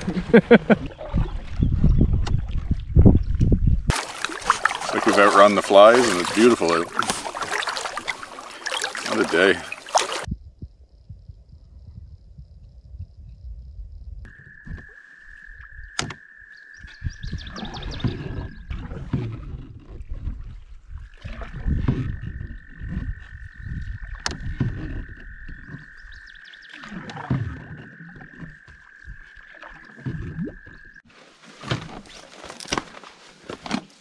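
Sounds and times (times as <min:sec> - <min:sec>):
frog trilling: 0:14.3 - 0:18.7, 0:21.1 - 0:31.1
low thumps and knocks: 0:21.2 - 0:26.2.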